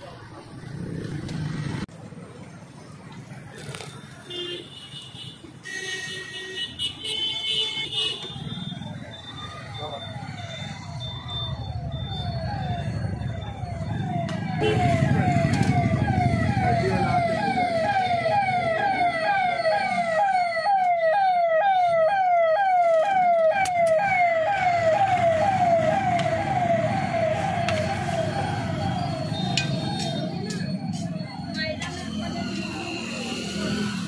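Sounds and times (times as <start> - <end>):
low traffic rumble: 8.2 - 34.0
electronic siren wailing: 8.5 - 34.0.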